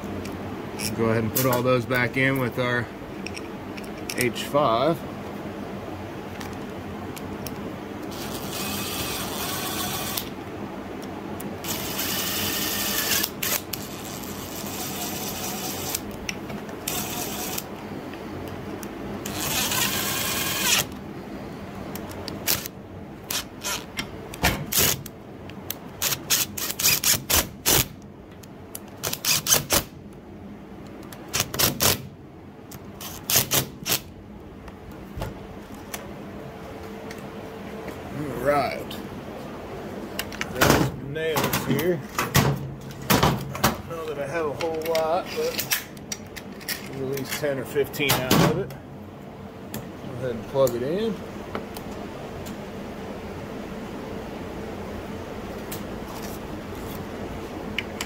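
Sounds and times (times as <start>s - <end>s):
drill motor whirring: 8.0s - 10.3s, 11.6s - 16.0s, 16.8s - 17.7s, 19.2s - 21.0s, 22.4s - 23.9s, 26.0s - 27.9s, 29.0s - 29.9s.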